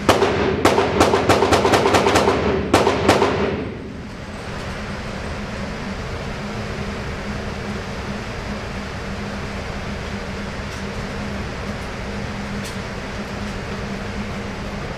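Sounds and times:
rapid gunshots echoing indoors: 0.0 - 3.9.

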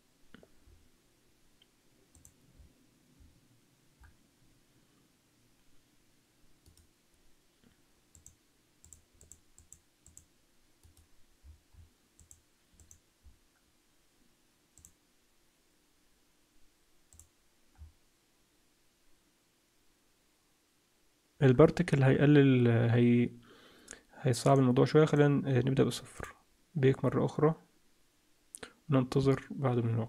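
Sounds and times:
faint computer mouse clicks: 1.6 - 2.4, 6.6 - 6.9, 8.1 - 11.1, 12.2 - 13.0, 14.8 - 15.0, 17.1 - 17.9.

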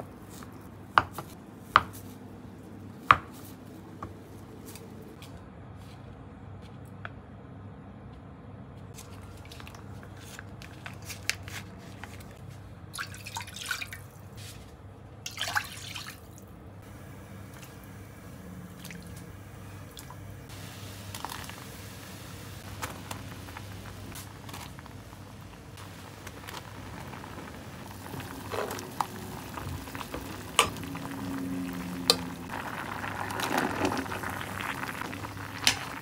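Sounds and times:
soft bubbling hiss: 15.4 - 36.0.

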